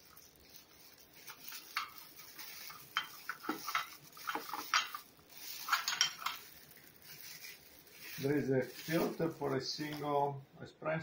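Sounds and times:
plastic wrap crinkling: 0:00.0 - 0:10.4
metal parts clinking: 0:01.3 - 0:07.2.

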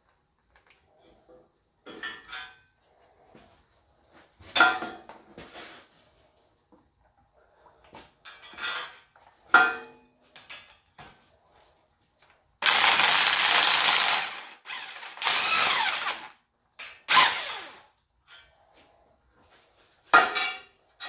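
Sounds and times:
cordless drill cutting threads: 0:12.6 - 0:16.4, 0:17.1 - 0:17.9.

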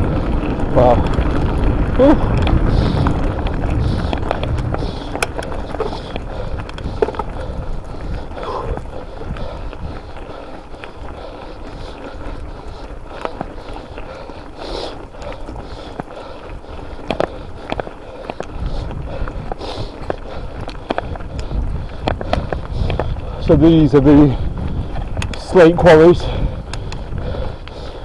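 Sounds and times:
bike clicking and rattling: 0:00.0 - 0:28.0
bike tyres on rough track: 0:00.0 - 0:28.0.

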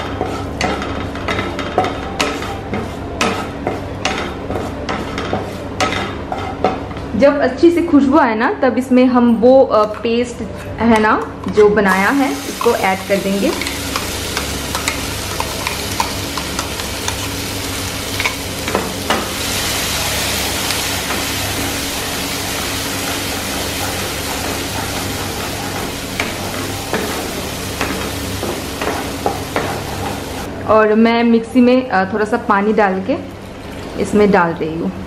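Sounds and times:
wooden spatula scraping a pan: 0:00.0 - 0:01.0, 0:01.8 - 0:06.7
paste sizzling in a pan: 0:12.2 - 0:30.5.

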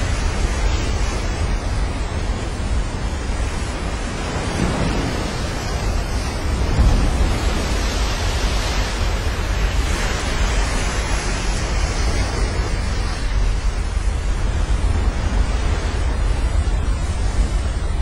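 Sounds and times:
ocean wave breaking: 0:00.0 - 0:18.0
wind buffeting microphone: 0:00.0 - 0:18.0.

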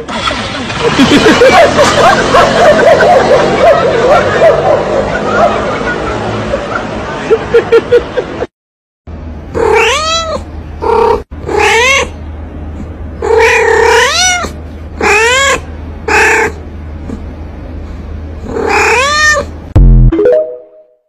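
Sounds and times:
cat meowing and yowling: 0:09.6 - 0:12.2, 0:13.2 - 0:16.6, 0:18.5 - 0:19.5.

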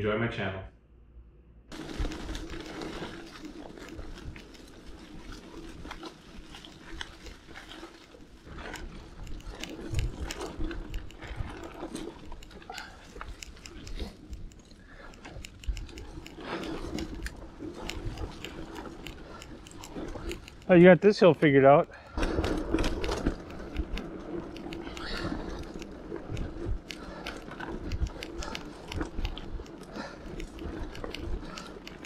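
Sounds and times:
tyres crunching through leaves: 0:01.7 - 0:08.2
bike clicks and rattles: 0:01.7 - 0:32.0.

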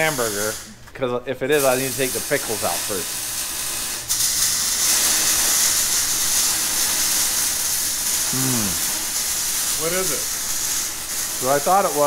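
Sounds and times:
steady loud hiss: 0:00.0 - 0:00.8, 0:01.5 - 0:12.0
person humming: 0:08.3 - 0:08.8.

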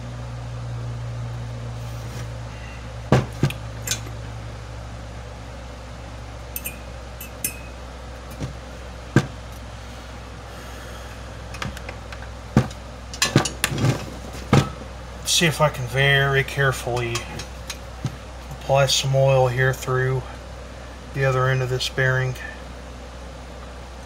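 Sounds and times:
steady low hum: 0:00.0 - 0:24.0
metallic clicks and knocks: 0:06.6 - 0:07.7.

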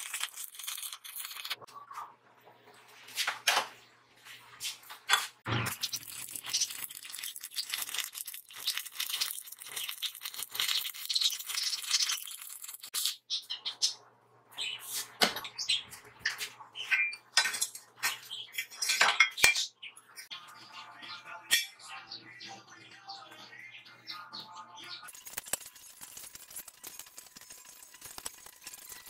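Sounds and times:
arc welding crackling sizzle: 0:05.8 - 0:13.0, 0:25.1 - 0:29.0.

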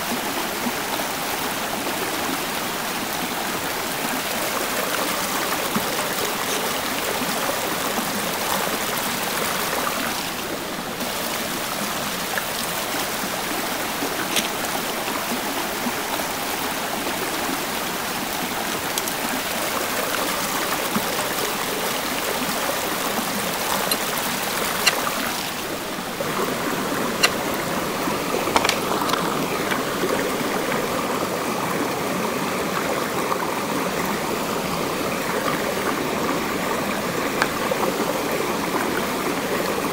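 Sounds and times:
stream flowing over rocks: 0:00.0 - 0:39.9
metal poles clicking: 0:23.7 - 0:25.5, 0:28.5 - 0:29.8.

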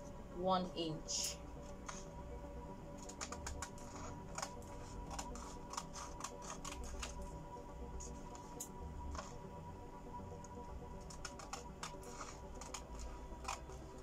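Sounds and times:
scissors snipping paper: 0:03.0 - 0:07.3, 0:11.0 - 0:14.0.

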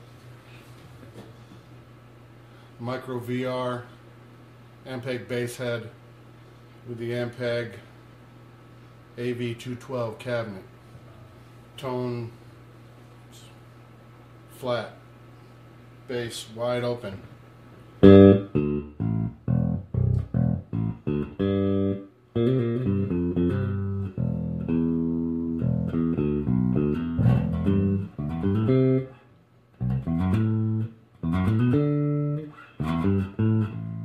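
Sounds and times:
electric bass plucked notes: 0:18.0 - 0:29.1, 0:29.8 - 0:34.0.

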